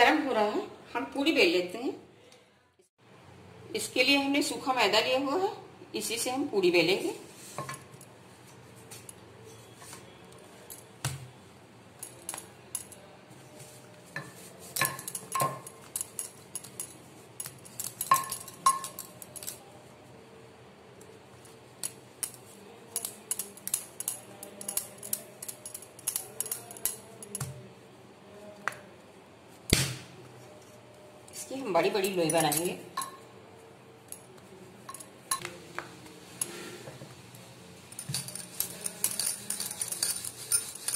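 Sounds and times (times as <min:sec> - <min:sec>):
steel plate clinking: 0:14.7 - 0:19.6, 0:37.9 - 0:40.9
hands working dough: 0:34.3 - 0:40.9.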